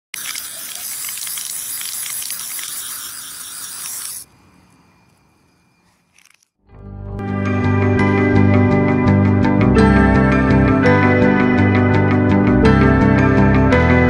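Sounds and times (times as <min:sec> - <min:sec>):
aerosol spray can hissing: 0:00.2 - 0:04.3.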